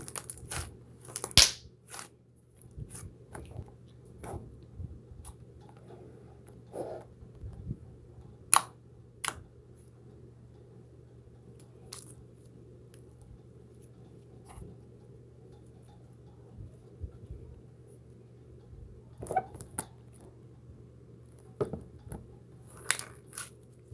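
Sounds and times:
low steady hum: 0.0 - 23.9.

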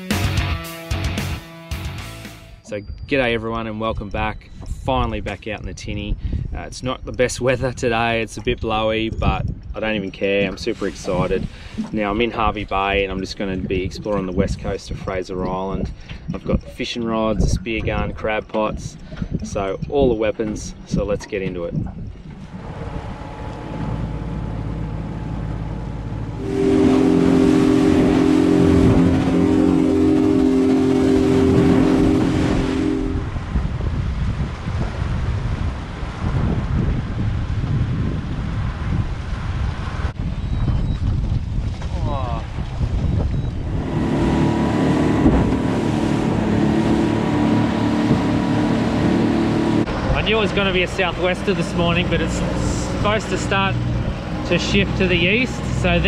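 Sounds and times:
wind: 2.6 - 56.0
water rushing: 7.8 - 37.4, 43.6 - 56.0
outboard motor running: 9.8 - 33.5, 43.4 - 56.0.

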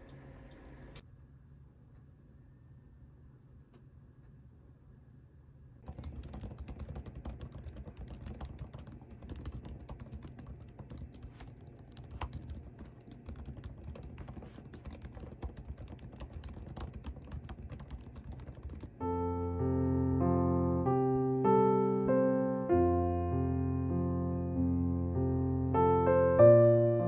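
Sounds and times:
laptop keyboard typing: 5.8 - 19.0.

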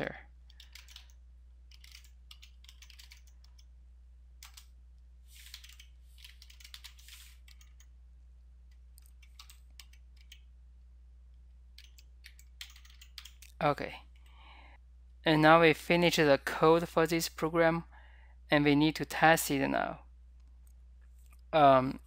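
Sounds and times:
steady low hum: 0.0 - 15.7
typing on computer keyboard: 0.5 - 3.7, 4.4 - 4.7, 5.4 - 7.9, 9.0 - 10.4, 11.8 - 13.6.

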